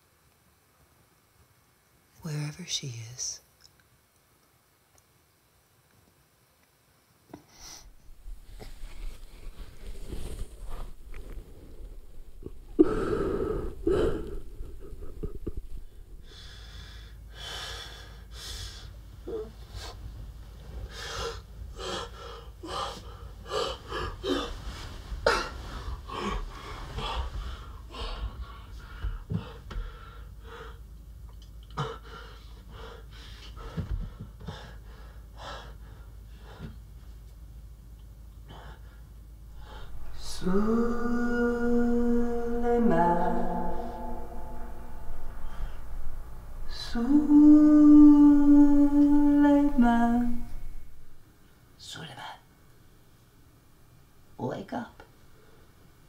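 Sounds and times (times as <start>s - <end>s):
man gasping and sobbing: 12.8s - 18.8s.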